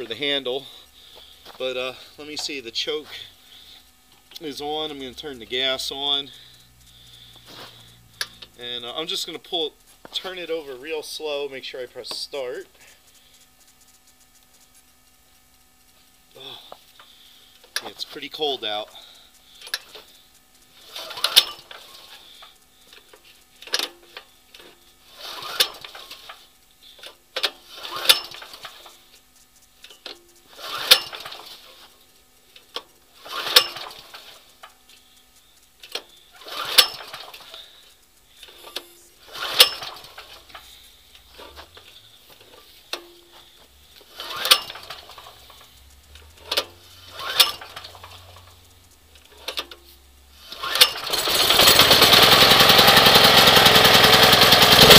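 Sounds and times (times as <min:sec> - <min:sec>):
generator pull-starter rattling whir: 0:16.3 - 0:54.9.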